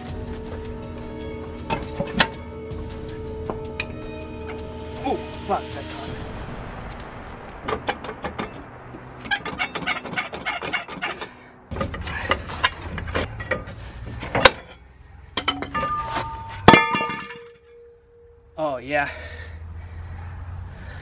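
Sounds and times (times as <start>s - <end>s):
metal knocks and clanks: 0.0s - 4.6s, 7.6s - 17.9s
loud ringing metal clank: 15.4s - 18.6s.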